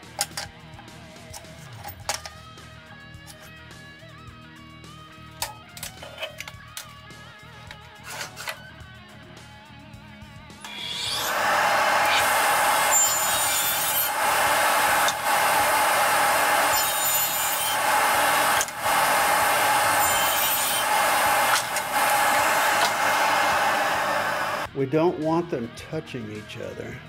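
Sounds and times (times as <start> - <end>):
radial arm saw cutting wood: 10.6 - 24.7.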